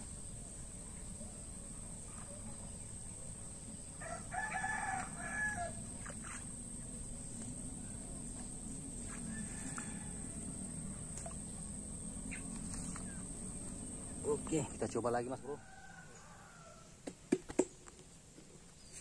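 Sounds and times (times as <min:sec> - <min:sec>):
rooster crowing: 0:04.0 - 0:05.8, 0:09.1 - 0:11.0, 0:15.3 - 0:17.0
high-pitched insect drone: 0:04.0 - 0:15.6.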